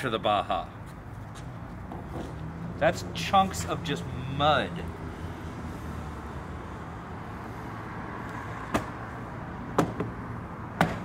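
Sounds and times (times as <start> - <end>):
air filter knocked against tire: 9.8 - 10.1.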